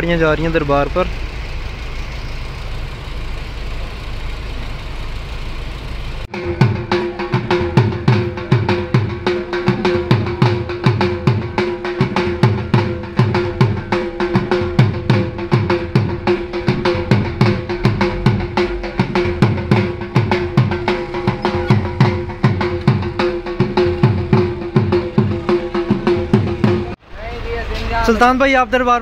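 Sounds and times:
barrel drum beating: 6.3 - 27.0
steady held tone: 6.3 - 27.0.

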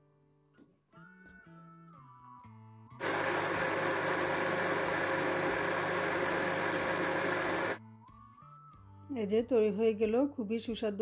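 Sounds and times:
blender running: 3.0 - 7.8.

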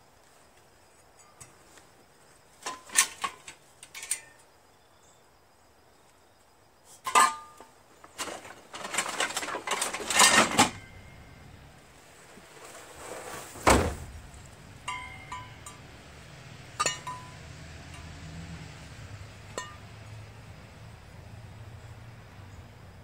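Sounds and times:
metal parts clanking and rattling: 2.6 - 4.4, 8.1 - 11.3.

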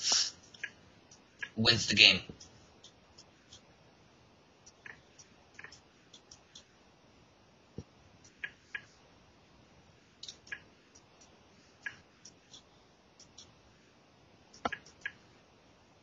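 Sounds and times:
computer mouse clicking: 0.1 - 1.6, 2.4 - 3.7, 4.6 - 6.7, 7.8 - 9.0, 10.2 - 13.6, 14.5 - 15.2.

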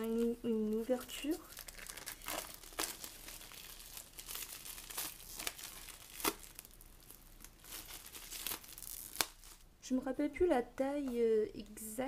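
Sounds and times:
plastic shrink-wrap crinkling: 0.0 - 9.6.

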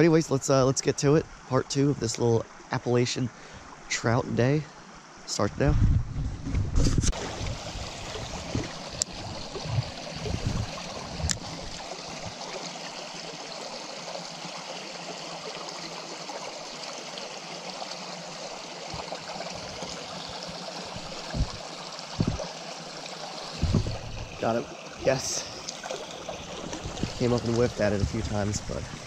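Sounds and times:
stream running over rocks: 0.0 - 5.5, 7.0 - 29.0
low bumps: 5.6 - 12.4, 19.5 - 21.6, 22.2 - 22.4, 23.6 - 24.6.

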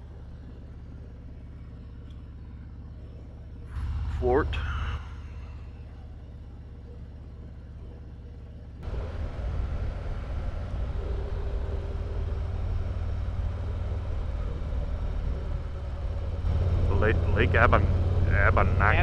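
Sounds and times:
motorcycle engine rumble: 3.0 - 19.0
road and wind noise: 8.8 - 19.0.

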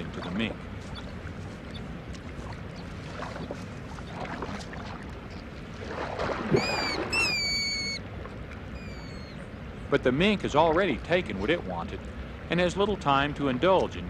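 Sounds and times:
stream water splashing: 0.0 - 14.0
high whistled calls: 6.5 - 8.0, 8.8 - 9.5.

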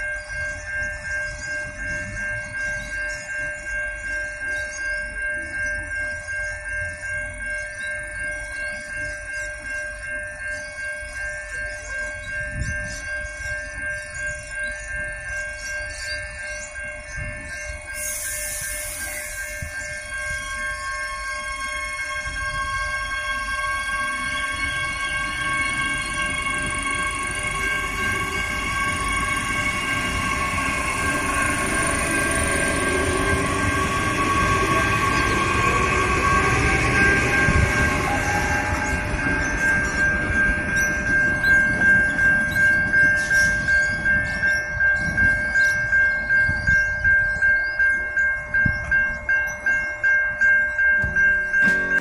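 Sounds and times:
electric train rail rumble: 0.0 - 52.0
level crossing warning bell: 0.0 - 52.0
electrical whine: 17.1 - 42.6.

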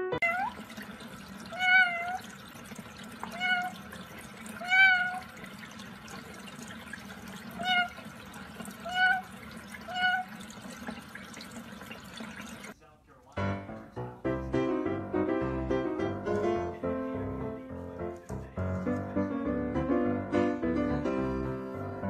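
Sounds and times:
tap water running: 0.0 - 12.8
parrot calls: 7.6 - 8.0, 8.8 - 9.3.

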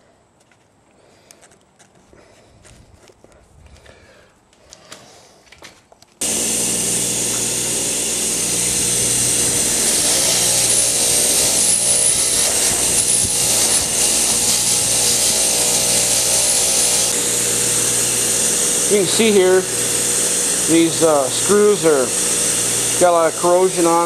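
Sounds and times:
wire wheel grinder running: 6.2 - 24.0.

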